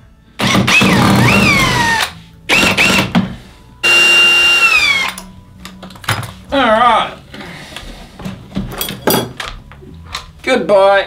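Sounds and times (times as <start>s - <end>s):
cordless drill whining: 0.4s - 3.1s, 3.8s - 5.2s.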